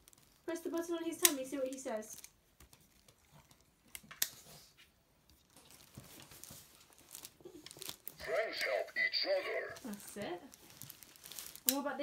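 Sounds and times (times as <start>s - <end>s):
plastic toy handling: 0.0s - 4.5s, 5.2s - 12.0s
plastic toy clicks: 0.8s - 2.4s.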